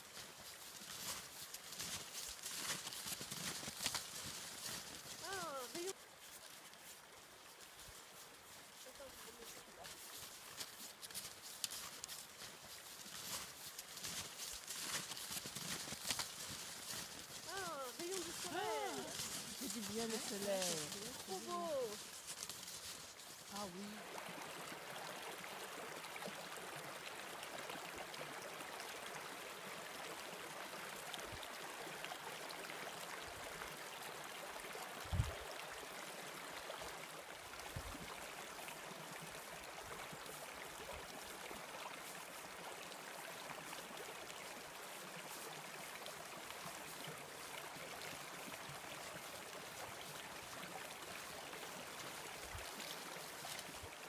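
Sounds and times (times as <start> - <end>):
stream running over stones: 0.0 - 54.0.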